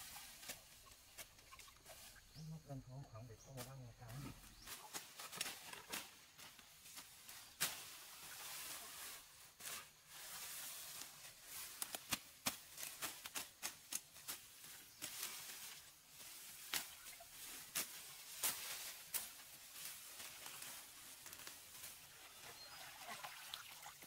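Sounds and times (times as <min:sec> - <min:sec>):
rustling of leaves and stems: 0:00.0 - 0:24.0
machete hacking through plants: 0:11.8 - 0:14.4.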